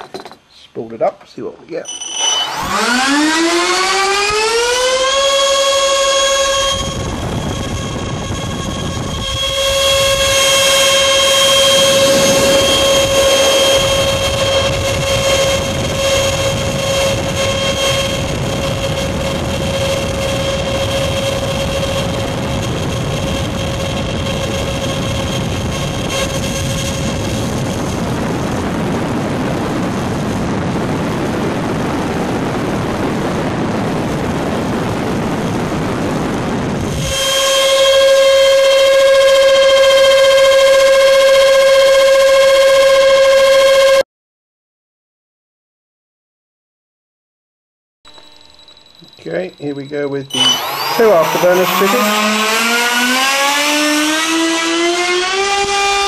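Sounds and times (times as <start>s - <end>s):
electric fans high whine: 1.4s - 44.0s, 48.1s - 56.0s
rush of air: 6.7s - 23.8s.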